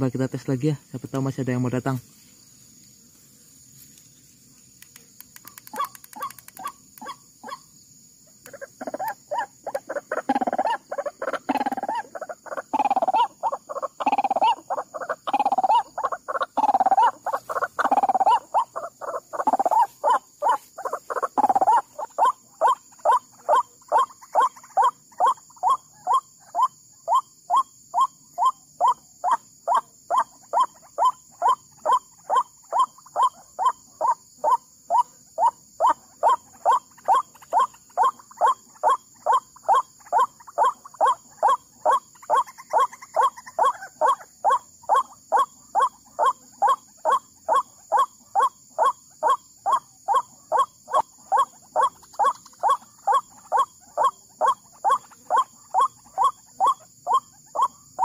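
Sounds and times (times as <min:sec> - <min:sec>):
waterhen calling: 0:08.5 - 0:25.4.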